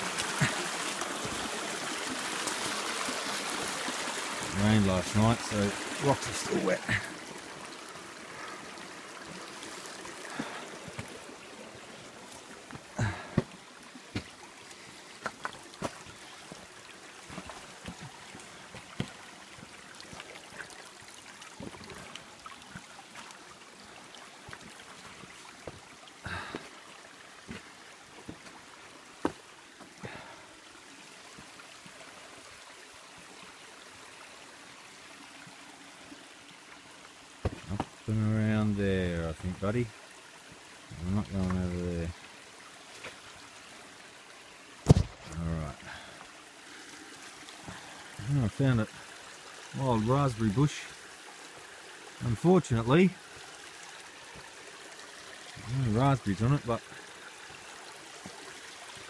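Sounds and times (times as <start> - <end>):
creek trickling over rocks: 0.0 - 59.0
footsteps on wet stones: 10.3 - 11.2, 12.3 - 14.4, 15.2 - 16.6, 17.3 - 18.1, 18.7 - 19.2, 27.5 - 28.6, 29.2 - 29.9, 37.4 - 38.0.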